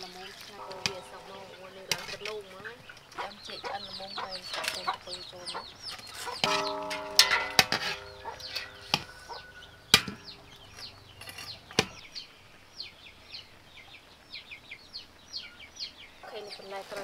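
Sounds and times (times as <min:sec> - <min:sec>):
chickens calling: 0:00.0 - 0:17.0
small birds chirping: 0:00.0 - 0:17.0
metal ladle knocking on wok: 0:06.4 - 0:09.2.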